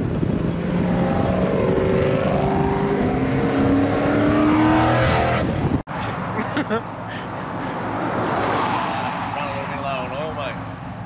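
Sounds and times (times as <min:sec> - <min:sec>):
car engine accelerating: 0:00.0 - 0:05.8
road noise: 0:00.0 - 0:11.0.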